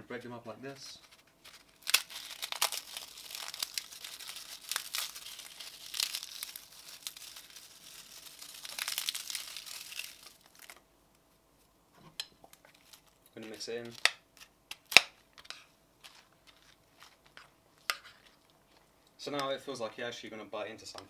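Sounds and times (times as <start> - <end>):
rice cakes crackling and crunching: 1.4 - 10.8, 12.5 - 19.5.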